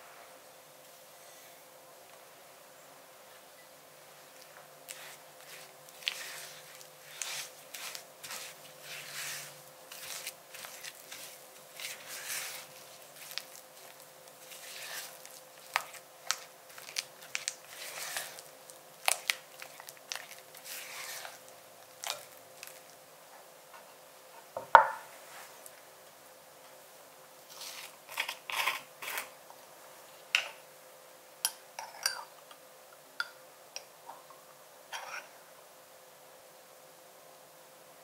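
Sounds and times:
spatula scraping in glass bowl: 4.9 - 16.0, 16.8 - 18.4, 20.6 - 21.4.

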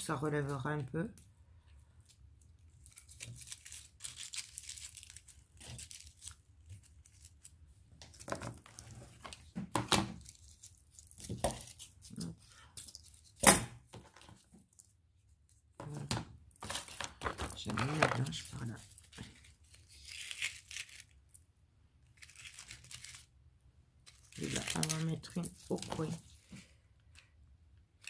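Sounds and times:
crinkling and tearing craft materials: 0.0 - 27.4.

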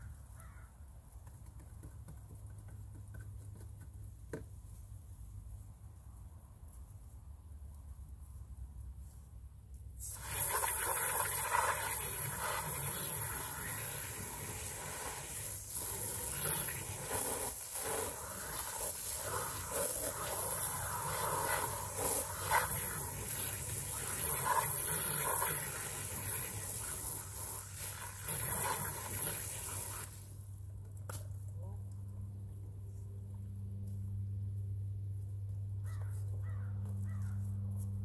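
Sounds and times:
water spattering on fabric: 10.0 - 30.2
hose spray hissing: 10.0 - 30.4.

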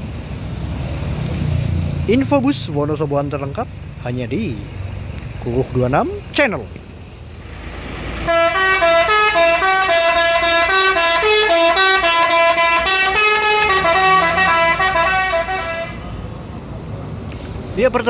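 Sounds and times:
multi-tone bus horn melody: 8.1 - 16.2.

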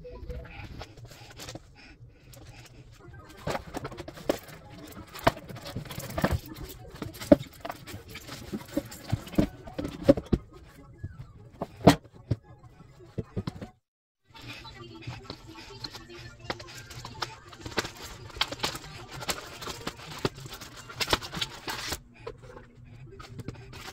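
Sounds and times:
cardboard packaging handled: 16.8 - 22.0.

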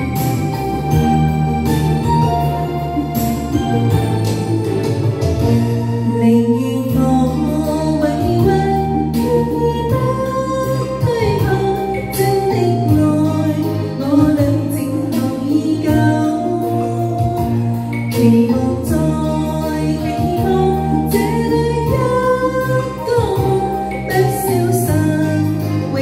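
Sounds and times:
band backing with bass and beat: 0.0 - 26.0
pop duet singing: 6.1 - 26.0.

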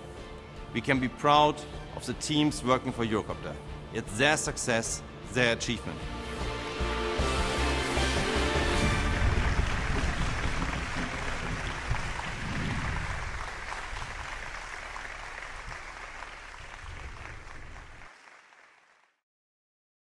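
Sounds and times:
crowd applauding: 7.2 - 19.2.

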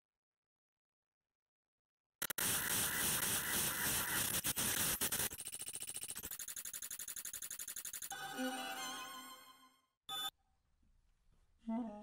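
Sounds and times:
hissy garbled sample playback: 2.2 - 8.1
fast even stutter: 2.2 - 8.2.

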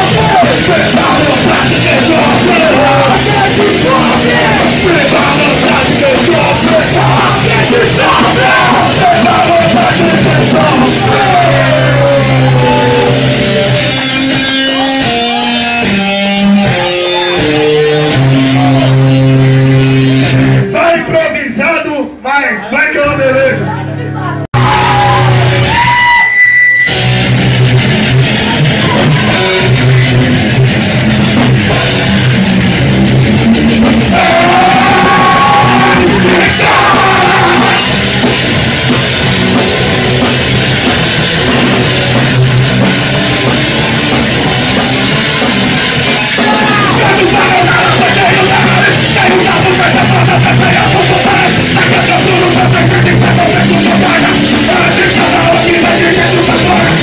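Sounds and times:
person singing: 0.0 - 13.4, 34.1 - 38.0, 46.1 - 57.0
drum kit: 0.0 - 20.8, 24.5 - 57.0
distorted electric guitar: 0.0 - 21.1, 23.0 - 57.0
bass guitar: 0.0 - 21.2, 23.0 - 57.0.

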